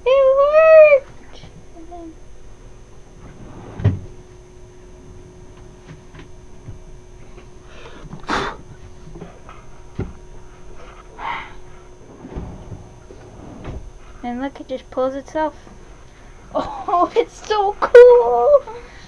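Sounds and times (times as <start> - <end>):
lid rushing scrape: 11.9 - 14.2
thump: 12.1 - 14.0.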